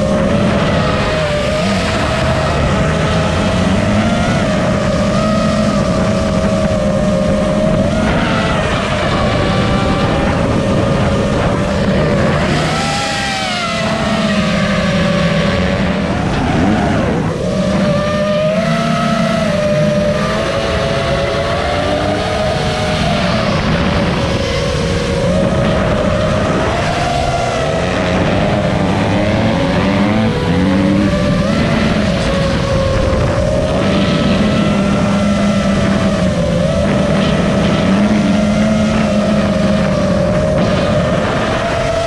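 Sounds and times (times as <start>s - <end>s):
motocross bike engines revving: 0.0s - 42.0s
quadcopter motors buzzing: 0.0s - 42.0s.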